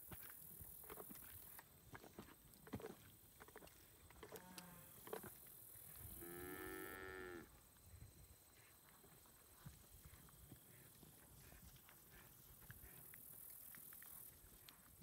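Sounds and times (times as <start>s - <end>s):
cow mooing: 6.2s - 7.5s.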